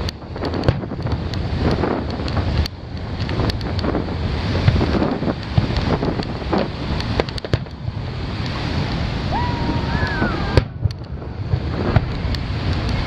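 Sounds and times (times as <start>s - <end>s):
fireworks bursting with sharp bangs: 0.0s - 13.0s
wind on microphone: 0.0s - 13.0s.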